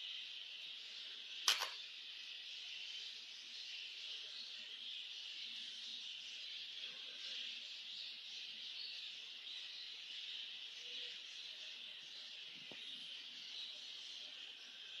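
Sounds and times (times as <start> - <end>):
faint chirps: 0.0 - 15.0
soft click: 1.5 - 1.8.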